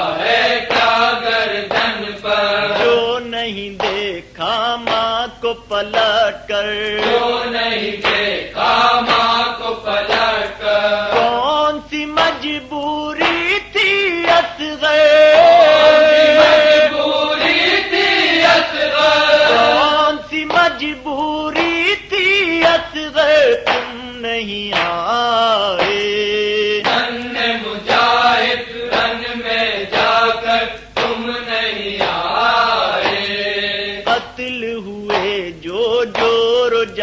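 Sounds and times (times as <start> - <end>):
men chanting a lament: 0.0 - 37.0
hand strikes beat: 2.7 - 3.2, 3.8 - 4.2, 4.8 - 5.2, 11.1 - 11.5, 19.5 - 20.9, 23.5 - 25.1, 25.8 - 26.2, 31.0 - 31.3, 32.0 - 32.4, 33.0 - 33.4, 34.0 - 37.0.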